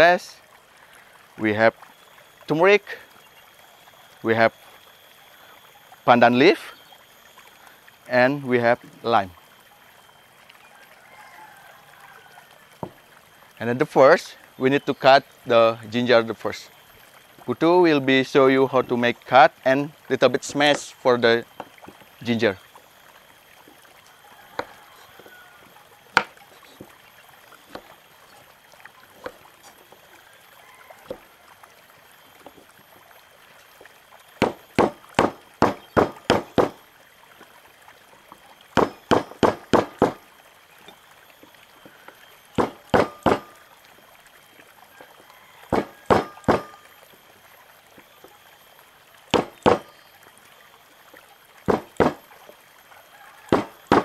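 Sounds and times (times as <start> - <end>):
knife tapping on cutting board: 45.7 - 46.7.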